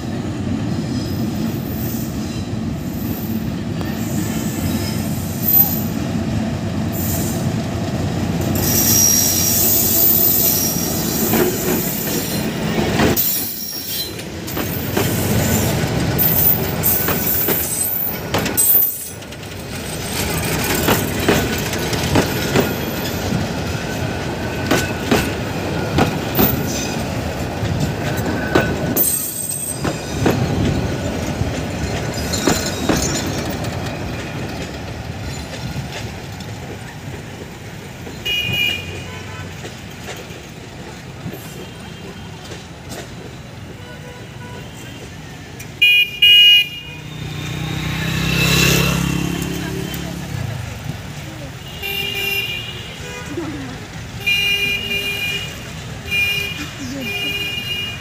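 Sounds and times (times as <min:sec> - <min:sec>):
diesel locomotive engine rumbling: 0:00.0 - 0:58.0
train coaches clattering over rail joints: 0:07.6 - 0:45.8
high wheel squeals: 0:08.5 - 0:12.6, 0:13.2 - 0:21.1.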